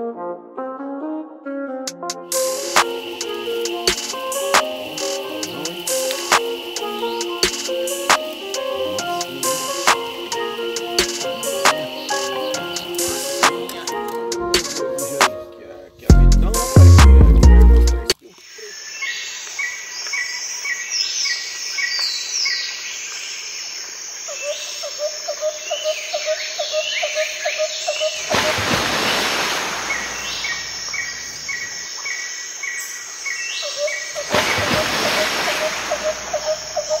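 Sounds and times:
falling whistles: 2.3s - 15.2s
rushing hiss: 2.3s - 15.3s, 28.2s - 31.5s, 34.3s - 37.0s
birds chirping and calling: 2.3s - 15.4s, 24.3s - 37.0s.

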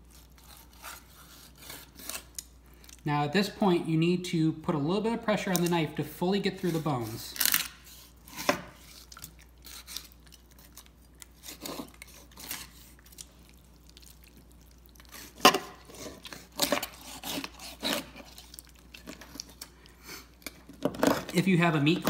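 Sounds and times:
bones cracking and crunching: 7.2s - 22.0s.

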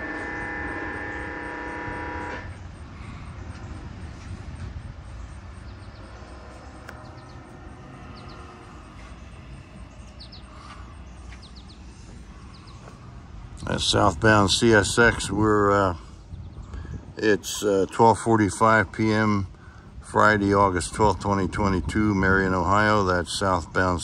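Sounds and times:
locomotive air horn: 0.0s - 4.7s
low rumble: 2.0s - 22.6s
faint bird chirps: 2.6s - 13.0s.

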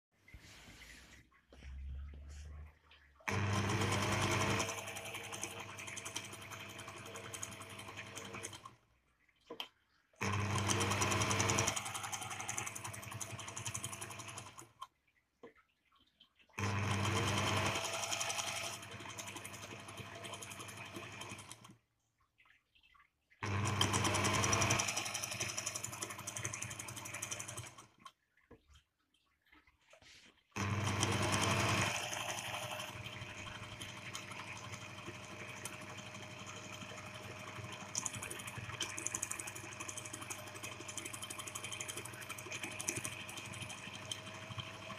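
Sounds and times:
sewing machine stitching: 3.2s - 8.8s, 10.2s - 14.9s, 16.6s - 21.8s, 23.4s - 28.1s, 30.6s - 44.9s.

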